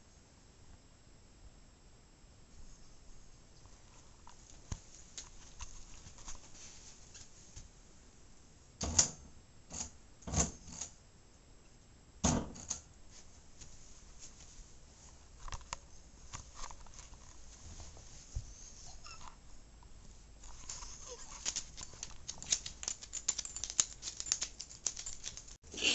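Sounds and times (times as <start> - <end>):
light clicks and rustling: 3.6 - 7.7, 20.4 - 25.6.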